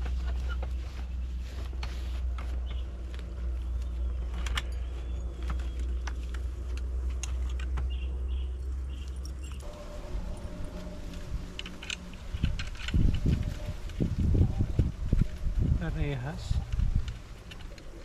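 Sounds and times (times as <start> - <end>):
steady low rumble: 0.0 - 18.0
metallic clicks and clinks: 8.6 - 14.0.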